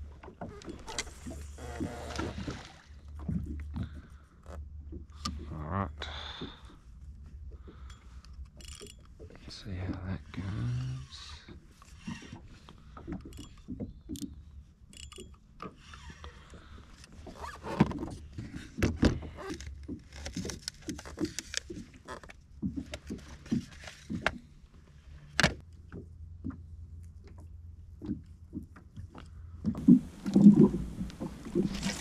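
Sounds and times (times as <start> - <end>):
fishing gear knocking and scraping: 7.7 - 24.4, 29.8 - 32.0.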